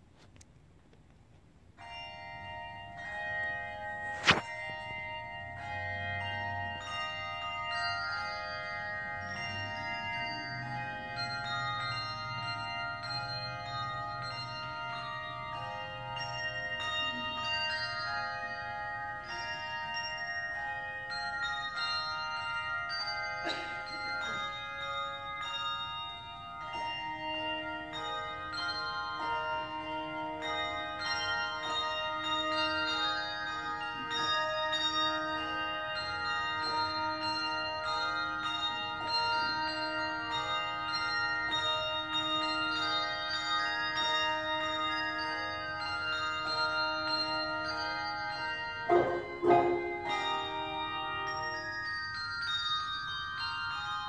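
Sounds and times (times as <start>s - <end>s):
handbell choir ringing a tune: 1.8s - 54.0s
low bell note: 48.9s - 51.7s.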